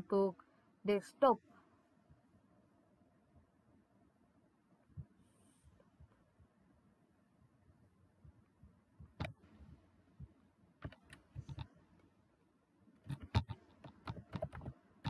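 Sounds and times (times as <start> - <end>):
keyboard keys clicking: 13.0 - 14.8.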